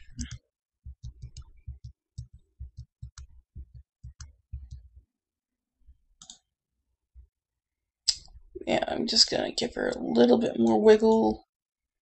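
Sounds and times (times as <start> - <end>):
mouse and keyboard clicking: 4.0 - 4.8, 6.2 - 6.4.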